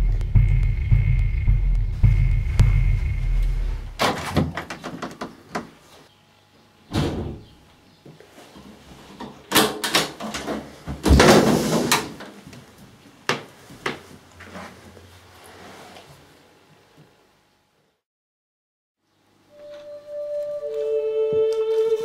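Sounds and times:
low throbbing music: 0:00.0 - 0:04.0.

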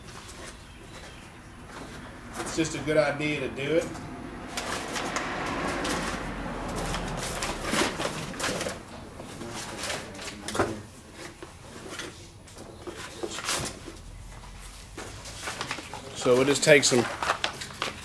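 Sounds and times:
tools and parts handled on a workbench: 0:05.8 - 0:18.0.

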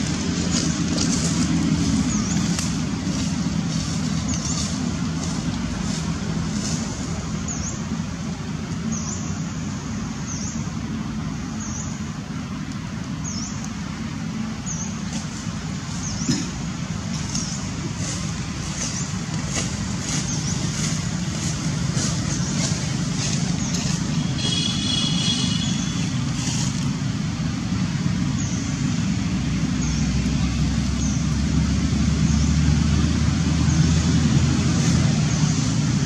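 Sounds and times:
road traffic rumble: 0:00.0 - 0:36.0.

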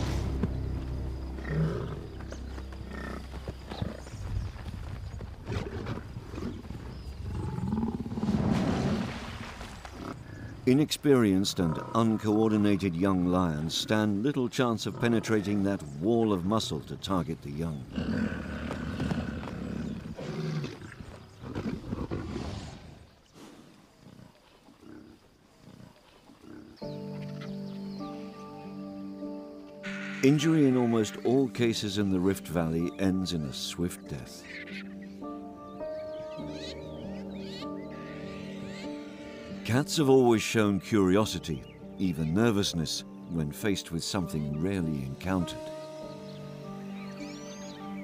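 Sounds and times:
hooves thudding: 0:00.0 - 0:07.5
lions growling: 0:01.4 - 0:04.1, 0:05.4 - 0:09.0, 0:17.8 - 0:23.2.

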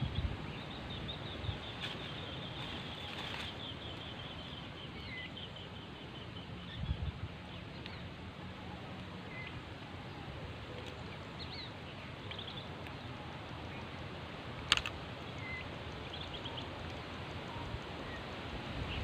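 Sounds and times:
wind rumble on microphone: 0:00.0 - 0:05.2, 0:06.4 - 0:19.0
small birds chirping: 0:00.0 - 0:19.0
sharp click: 0:14.6 - 0:15.0.

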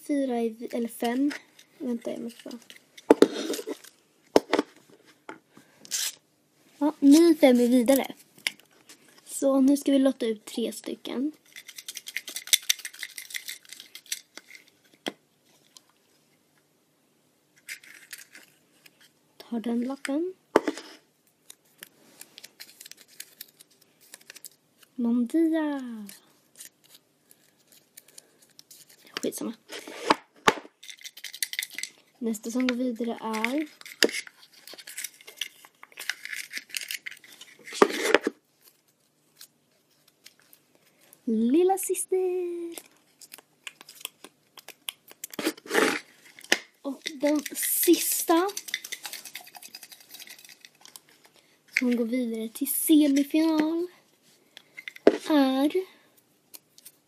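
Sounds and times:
paper slips rattling in a box: 0:47.0 - 0:51.0.

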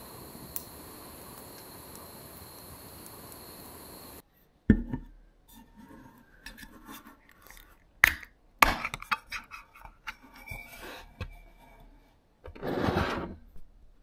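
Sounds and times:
can clicks and scrapes: 0:06.4 - 0:11.3
rough scrape on table: 0:10.2 - 0:13.5.

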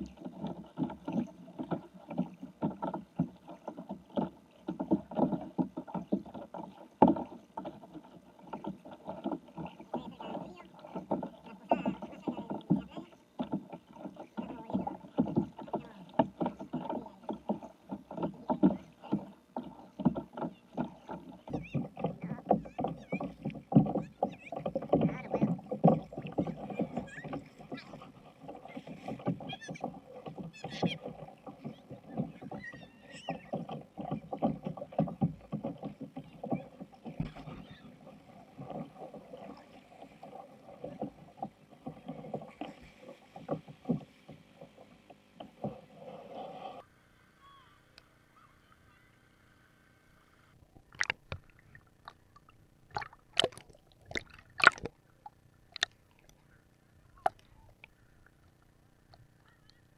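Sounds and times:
water slapping against kayak hull: 0:00.0 - 0:46.8, 0:50.8 - 0:56.4
paddle splashing water: 0:00.0 - 0:59.9
faint voices: 0:09.2 - 0:34.9.

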